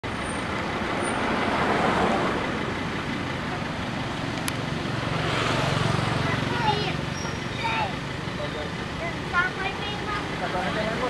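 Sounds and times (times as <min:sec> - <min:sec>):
rushing outdoor background noise: 0:00.0 - 0:11.0.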